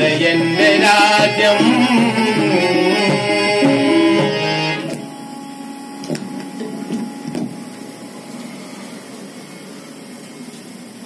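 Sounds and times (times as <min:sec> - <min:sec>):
room noise hiss: 0:00.0 - 0:11.0.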